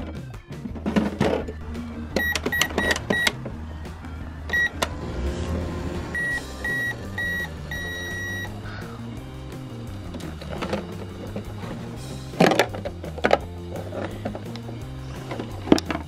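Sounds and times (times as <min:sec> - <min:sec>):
toy microwave beeping: 0:02.1 - 0:03.4, 0:04.5 - 0:04.8, 0:06.1 - 0:08.6.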